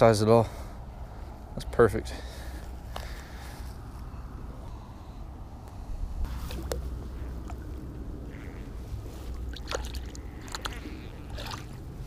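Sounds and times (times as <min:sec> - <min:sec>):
water sloshing and splashing: 0:06.3 - 0:07.8, 0:09.0 - 0:12.0.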